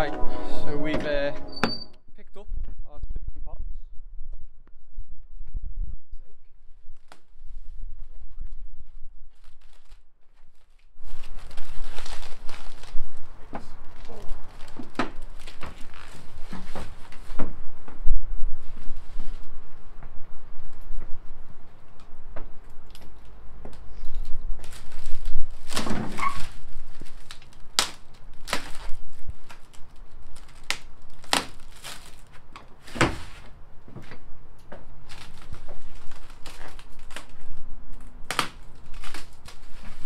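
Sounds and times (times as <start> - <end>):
foam wrapping crinkling: 6.8 - 17.6, 22.8 - 33.6, 34.8 - 40.0.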